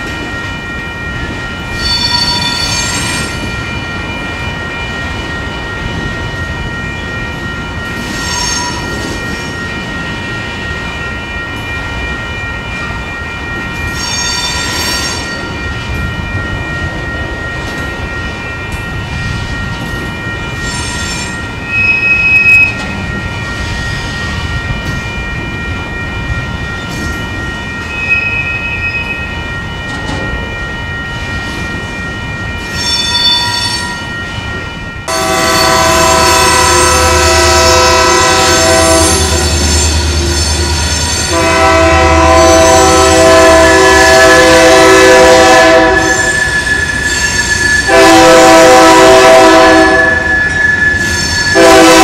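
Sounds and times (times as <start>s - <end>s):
freight train rumbling past: 0.0s - 52.0s
steel wheels squealing: 1.7s - 3.6s, 7.9s - 9.7s, 13.8s - 15.5s, 20.5s - 24.6s, 26.8s - 29.3s, 32.6s - 34.1s, 45.9s - 47.9s, 50.1s - 51.7s.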